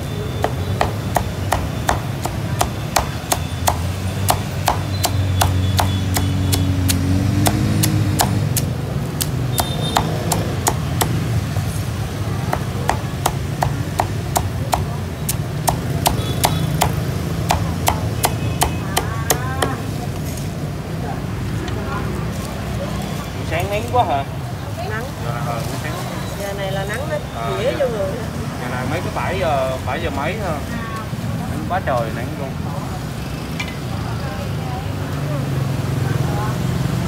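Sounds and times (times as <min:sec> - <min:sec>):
cleaver chopping on wooden board: 0:00.4 - 0:11.2, 0:12.4 - 0:19.9.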